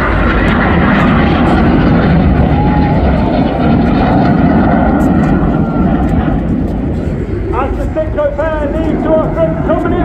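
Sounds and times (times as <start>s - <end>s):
jet engines roaring overhead: 0.0s - 10.0s.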